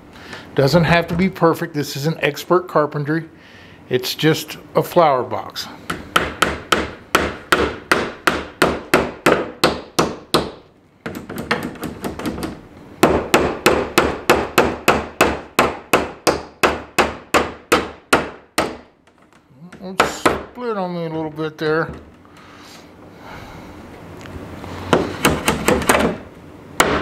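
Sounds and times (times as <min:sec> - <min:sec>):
hammer striking nails into wood: 0:05.9 - 0:18.9, 0:19.7 - 0:20.5, 0:24.9 - 0:26.2, 0:26.8 - 0:27.0.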